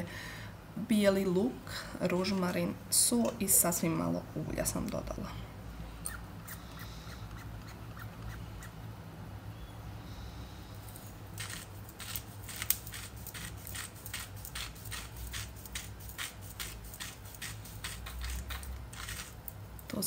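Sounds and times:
dried herbs crumbling crackles: 10.8s - 20.0s.

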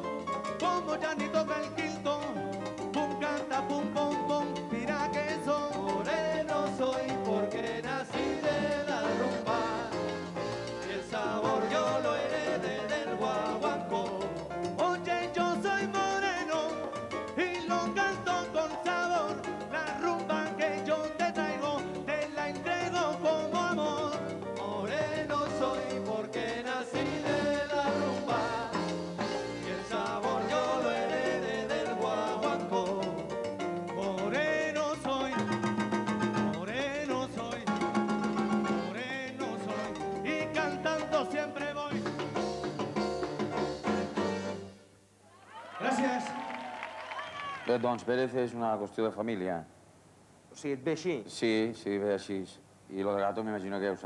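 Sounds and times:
timbales and cowbell rhythm: 0.0s - 44.8s
keyboard: 0.0s - 45.0s
conga beat: 0.0s - 48.1s
latin band playing: 0.0s - 48.2s
man singing: 0.5s - 28.9s, 29.5s - 33.4s, 34.0s - 35.8s, 36.5s - 37.9s, 38.8s - 42.3s.

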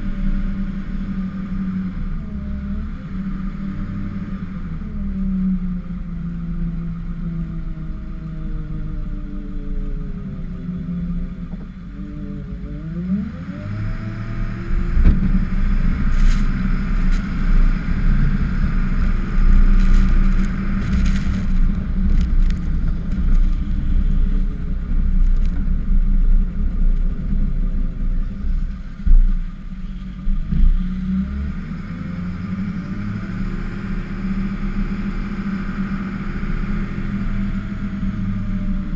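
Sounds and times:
plow blade scraping snow: 13.2s - 25.6s.

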